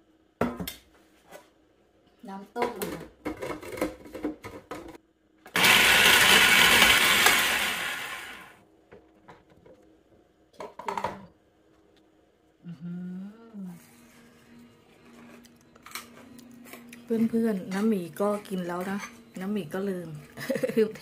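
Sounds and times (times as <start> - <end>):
food processor motor running: 5.5 - 8.6.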